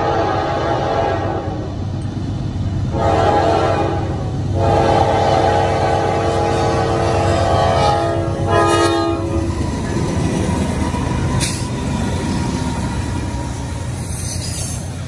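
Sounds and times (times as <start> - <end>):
locomotive air horn chord: 0.0 - 1.7, 2.9 - 9.4
diesel locomotives rumbling past: 0.0 - 15.0
steel wheels on rails: 6.6 - 15.0.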